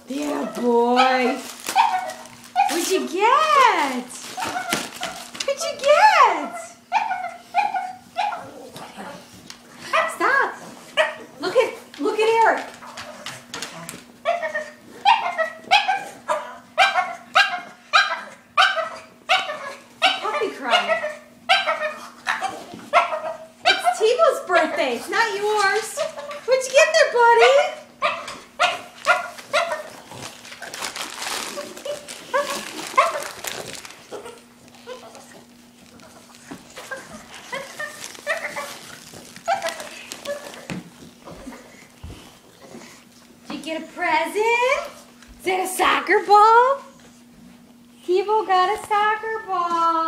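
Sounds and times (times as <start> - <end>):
dog barking: 6.9 - 8.5, 9.9 - 10.2, 11.0 - 11.3, 14.2 - 24.0, 27.4 - 29.9, 31.9 - 33.3.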